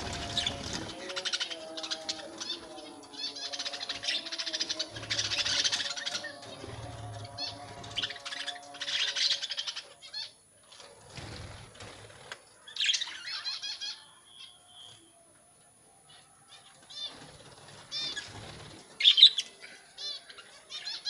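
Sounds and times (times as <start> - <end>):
budgerigars chirping and warbling: 0.0 - 10.4, 17.9 - 21.0.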